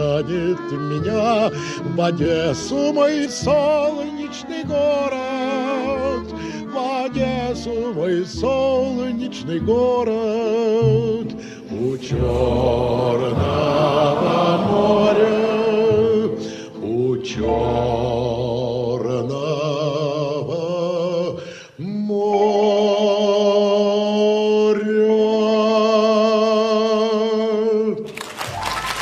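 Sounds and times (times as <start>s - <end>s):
man singing with vibrato: 0.0s - 28.1s
small dance band playing: 11.9s - 18.1s, 28.4s - 29.0s.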